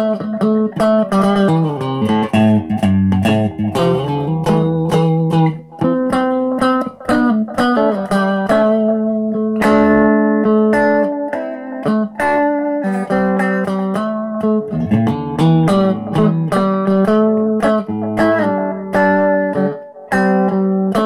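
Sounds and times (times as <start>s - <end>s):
picked guitar notes: 0.0s - 21.0s.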